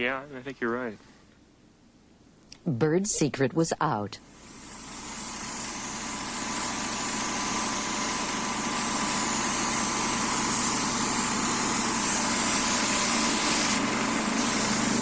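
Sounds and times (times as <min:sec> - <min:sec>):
air blow gun hissing: 0:04.2 - 0:15.0.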